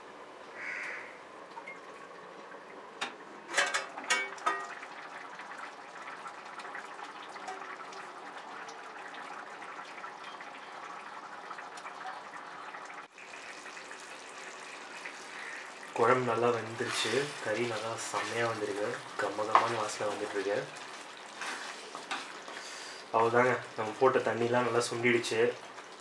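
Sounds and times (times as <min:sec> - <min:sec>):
curry bubbling: 0:01.5 - 0:26.0
steel lid clanking: 0:03.4 - 0:04.8.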